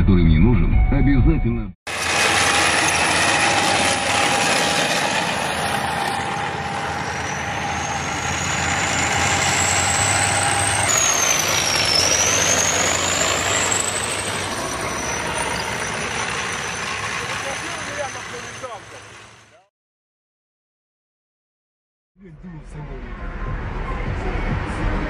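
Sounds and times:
high-pitched whine: 0.6 - 19.1
tracked vehicles driving on sand: 1.9 - 19.7, 22.2 - 25.0.

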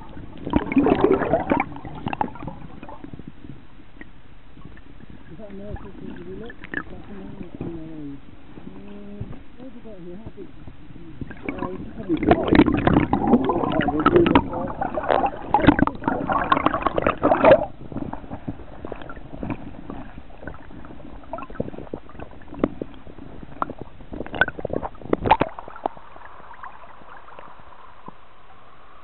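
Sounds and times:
water sloshing and gurgling: 0.0 - 29.0
small clicks and splashes: 4.0 - 7.9, 11.3 - 17.7, 18.3 - 28.2.

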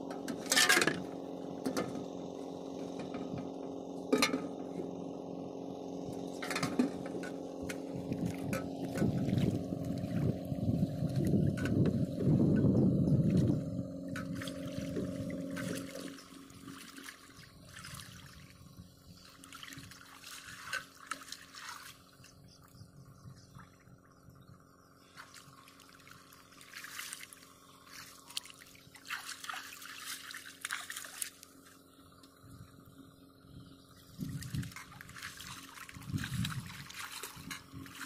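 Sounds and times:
water splashing in a basin: 7.7 - 12.2, 13.3 - 18.6, 19.2 - 22.2, 25.1 - 31.7, 34.2 - 38.0.

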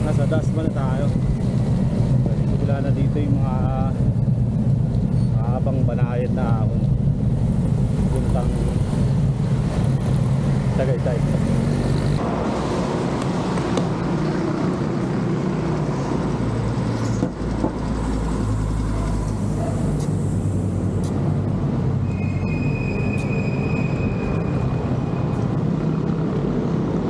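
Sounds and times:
road traffic rumble: 0.0 - 27.0
high thin vehicle squeal: 22.0 - 25.4.

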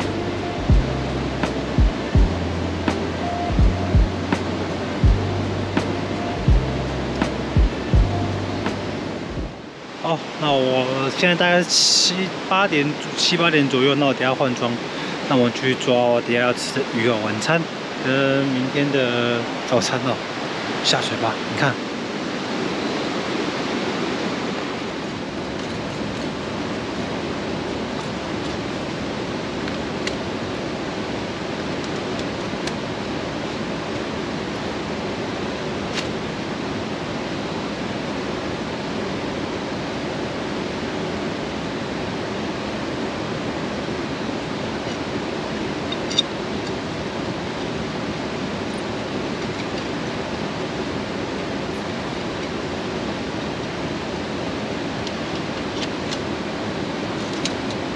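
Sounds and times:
stream water rushing: 0.0 - 57.9.

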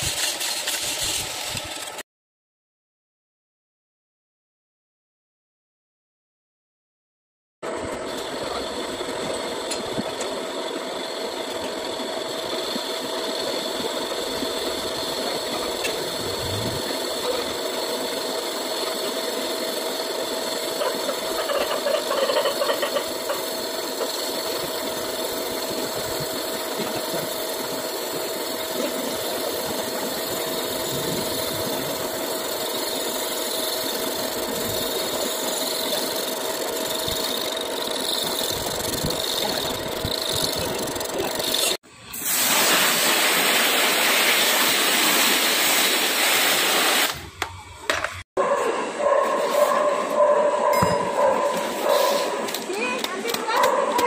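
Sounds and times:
metal lathe running: 7.7 - 41.8.

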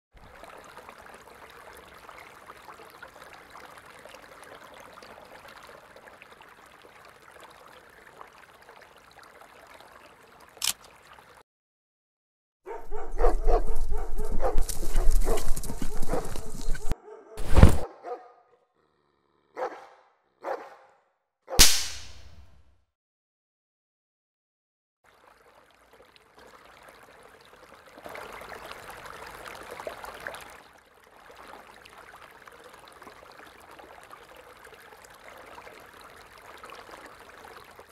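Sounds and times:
hunting dogs barking: 12.7 - 18.6, 19.5 - 21.6
single sharp sounds: 21.6 - 22.6.

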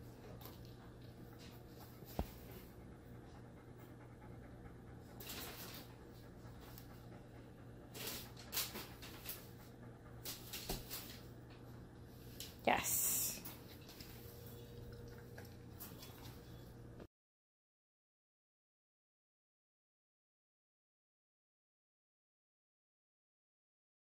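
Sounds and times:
dog panting: 0.0 - 12.4.

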